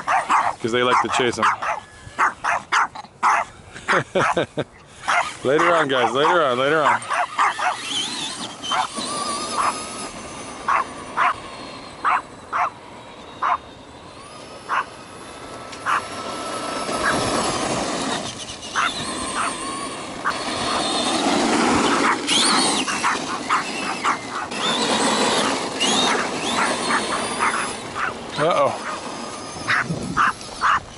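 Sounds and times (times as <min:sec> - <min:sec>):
dog barking in yips: 0:00.0 - 0:03.5, 0:05.1 - 0:07.9, 0:08.7 - 0:08.9, 0:10.7 - 0:11.4, 0:22.9 - 0:24.8, 0:29.7 - 0:30.8
toy truck motor whirring: 0:00.0 - 0:04.0, 0:04.8 - 0:30.9.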